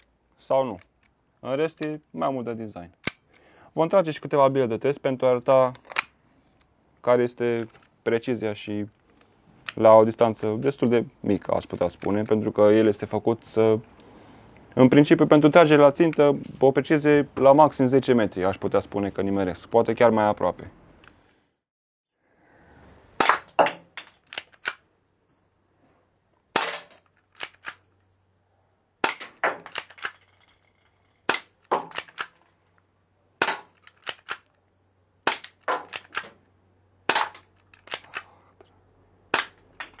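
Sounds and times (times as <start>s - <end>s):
pistol slide racking clicks: 5.8s - 6.1s, 24.0s - 24.8s, 26.6s - 27.8s, 29.0s - 30.2s, 31.3s - 32.4s, 33.4s - 34.6s, 35.3s - 36.4s, 37.1s - 38.3s, 39.4s - 40.0s
airsoft pistol shots: 26.6s - 27.0s, 29.0s - 30.0s, 33.4s - 33.8s, 35.3s - 36.3s, 37.1s - 37.4s.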